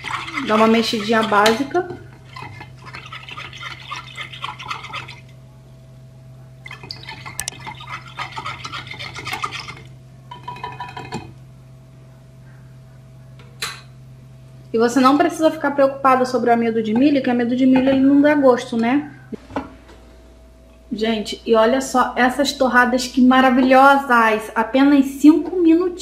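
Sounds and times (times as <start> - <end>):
whisk swishing in saucepan: 0.0 - 5.2, 6.7 - 9.9
low hum: 0.0 - 24.8.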